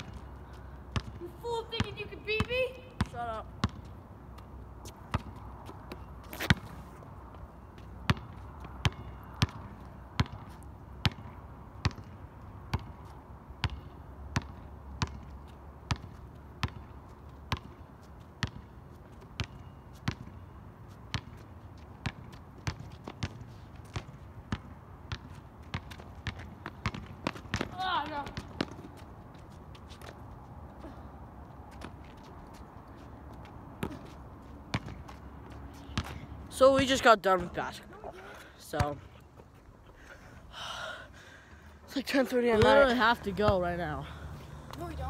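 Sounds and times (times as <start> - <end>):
basketball bouncing on asphalt: 0.0 - 38.0, 38.6 - 39.1, 42.2 - 45.0
sharp ball smack: 6.3 - 6.7.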